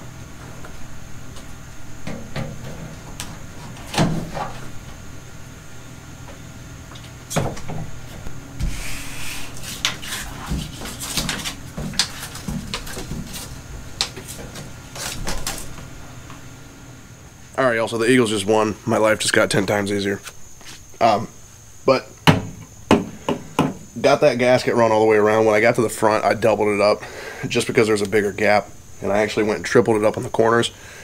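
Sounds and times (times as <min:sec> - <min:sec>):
tape rustling rasp: 0:08.6 - 0:15.9.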